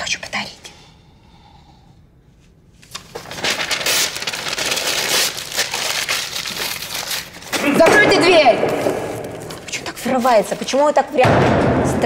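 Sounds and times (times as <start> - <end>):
paper crinkling: 2.8 - 7.7, 8.6 - 10.8.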